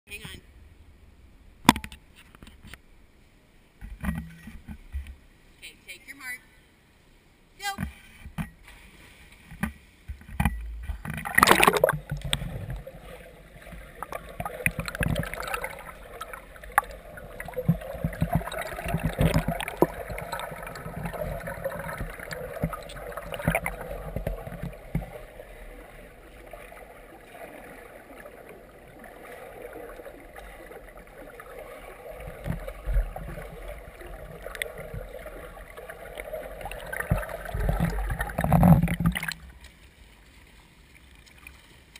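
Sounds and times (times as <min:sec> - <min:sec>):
muffled underwater splashing: 0:08.6 - 0:41.9.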